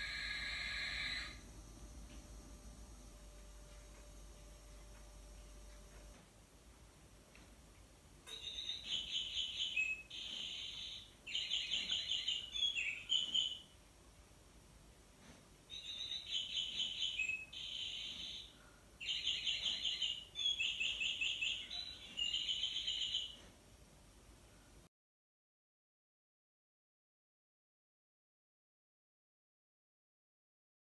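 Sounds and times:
recorded birdsong from clock speaker: 0:00.0 - 0:01.4, 0:08.2 - 0:13.8, 0:15.7 - 0:23.5.

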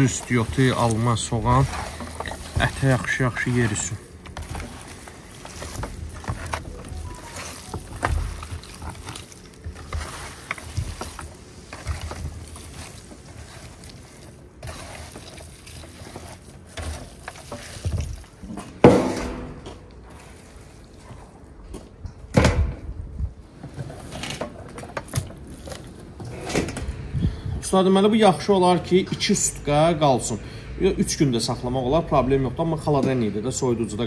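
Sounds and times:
wet squelching of meat kneading: 0:00.0 - 0:18.8, 0:19.8 - 0:22.0, 0:25.1 - 0:26.2.

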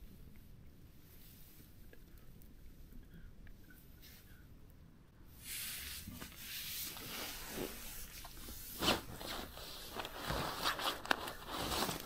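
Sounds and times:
rustling gear and clothing: 0:06.0 - 0:12.0.

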